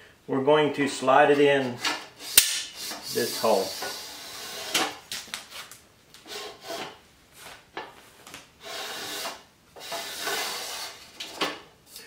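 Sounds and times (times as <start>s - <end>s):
metal arm scraping in tube: 1.2s - 5.0s, 6.2s - 7.0s, 8.6s - 11.5s.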